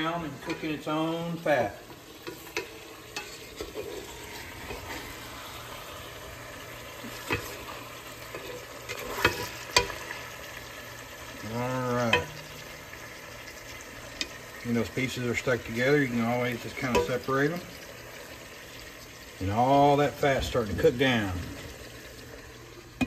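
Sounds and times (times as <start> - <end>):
spatula stirring: 0.0 - 15.1, 16.6 - 17.2
bacon sizzling in a pot: 0.0 - 23.0
spatula knocking against pot: 12.1 - 12.6.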